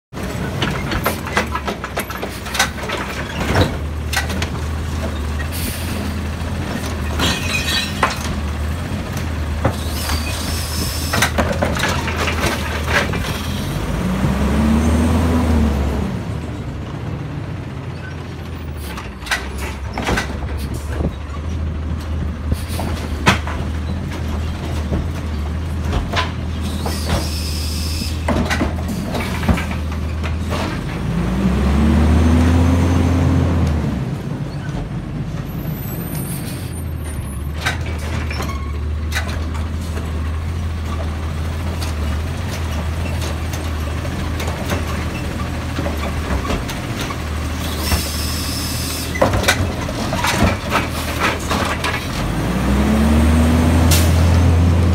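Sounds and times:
carts knocking and clattering: 0.2s - 5.4s, 6.0s - 13.5s, 18.8s - 27.4s, 28.2s - 31.1s, 37.5s - 48.1s, 49.1s - 52.3s.

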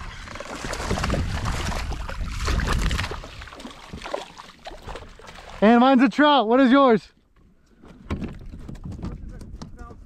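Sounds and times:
fish splashing in water: 0.0s - 5.6s
landing net scooping water: 0.0s - 5.8s.

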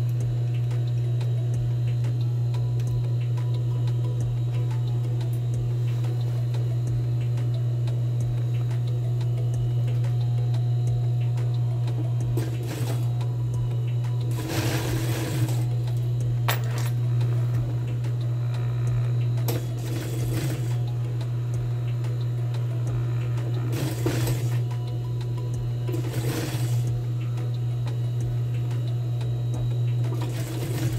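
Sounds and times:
steady low hum: 0.0s - 30.9s
sewing machine stitching: 12.4s - 13.1s, 14.3s - 15.7s, 19.5s - 20.9s, 23.6s - 24.6s, 25.9s - 26.9s, 30.1s - 30.9s.

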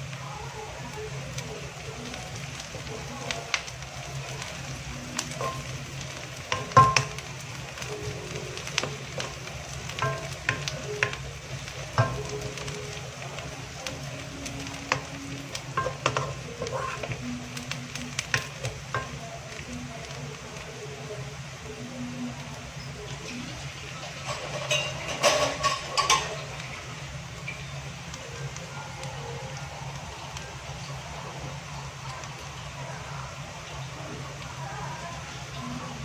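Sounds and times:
vegetables sizzling in oil: 0.0s - 36.0s
wooden spatula knocking pan: 5.2s - 13.0s, 13.8s - 20.2s.

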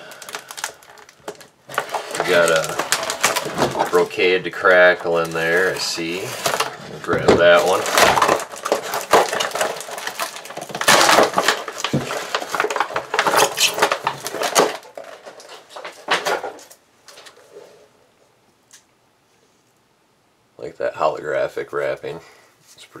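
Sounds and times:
plastic packaging crackling: 0.0s - 17.4s.

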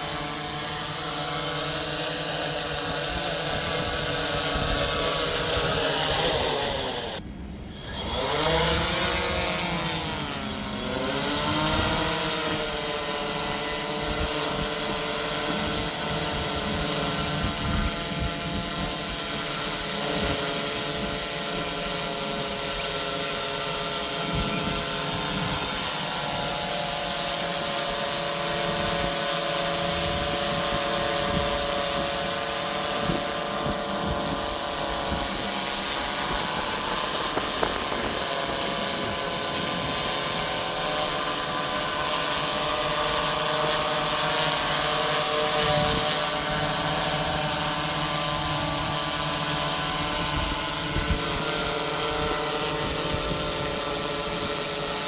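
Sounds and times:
drone propellers whining: 0.0s - 55.0s.

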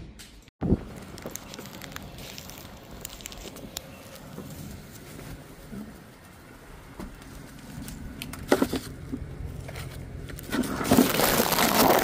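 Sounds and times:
plastic bag rustling and crinkling: 0.8s - 6.4s, 10.4s - 12.0s.

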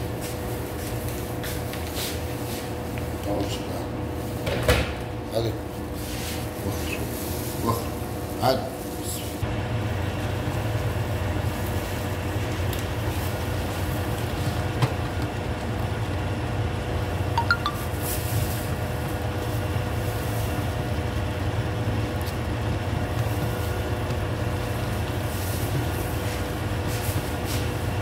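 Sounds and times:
dough mixer motor humming: 9.4s - 17.4s, 18.3s - 28.0s.

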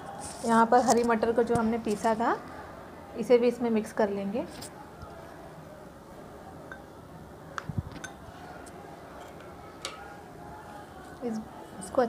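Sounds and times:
metal spoon clinking crockery: 8.0s - 8.2s.

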